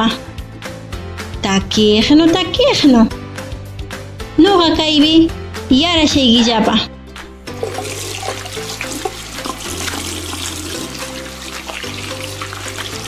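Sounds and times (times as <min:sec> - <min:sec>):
background music with bass line: 0:00.0 - 0:13.0
water running from a tap: 0:07.5 - 0:13.0.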